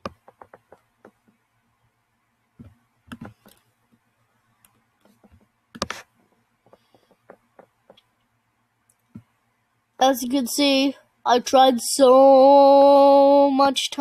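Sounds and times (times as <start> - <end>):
keyboard and touchpad clicks: 3.1 - 3.6.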